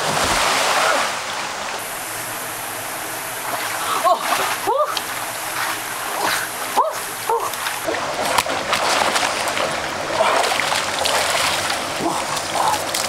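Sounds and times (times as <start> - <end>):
water splashing from swimming: 3.4 - 13.0.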